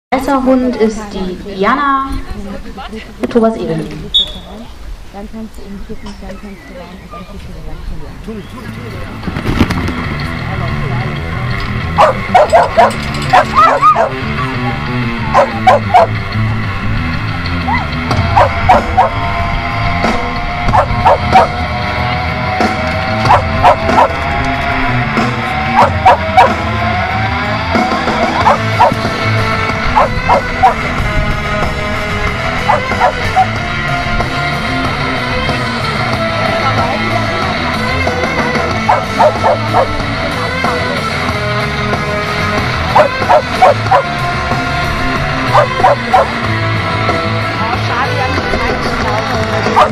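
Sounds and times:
background music: 0.1 - 4.2, 8.3 - 49.9
dog barking: 12.0 - 16.2, 17.7 - 19.2, 20.7 - 21.6, 23.3 - 24.2, 25.7 - 26.6, 28.3 - 29.0, 29.9 - 30.8, 32.7 - 33.6, 38.8 - 39.9, 42.9 - 44.1, 45.5 - 46.4.

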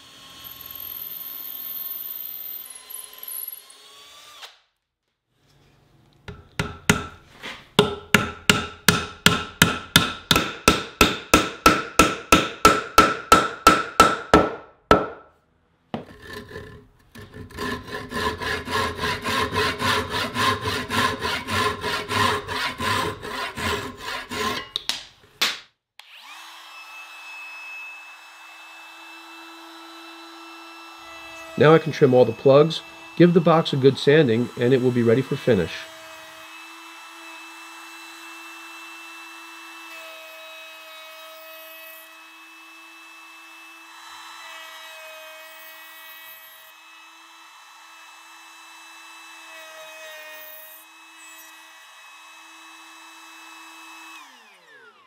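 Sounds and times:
cordless drill boring wood: 0.0 - 4.6, 26.0 - 55.0
trim router running: 26.0 - 39.8, 51.0 - 55.0.

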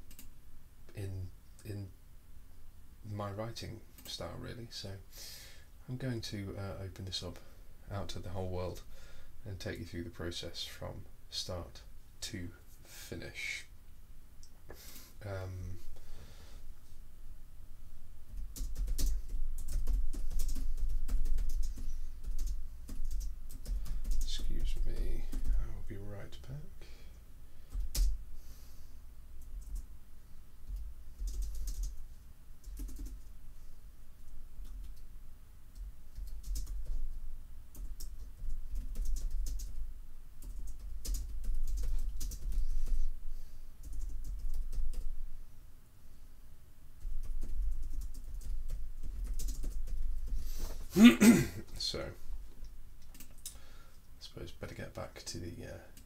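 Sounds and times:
typing on computer keyboard: 18.3 - 25.6, 27.7 - 28.2, 30.7 - 32.0, 32.6 - 33.3, 35.8 - 37.0, 37.7 - 39.8, 40.4 - 43.0, 43.8 - 45.1, 47.0 - 50.4.

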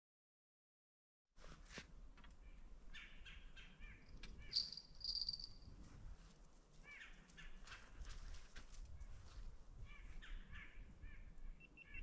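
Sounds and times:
bird chirps: 3.0 - 5.6, 10.2 - 12.0.

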